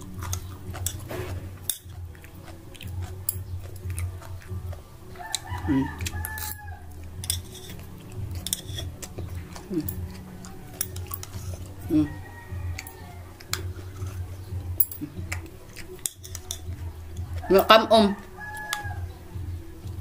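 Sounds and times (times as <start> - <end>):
utensils clicking against bowl: 0.0 - 4.5, 5.2 - 11.7, 14.8 - 17.7
steady low hum: 0.0 - 17.4
chewing: 0.0 - 20.0.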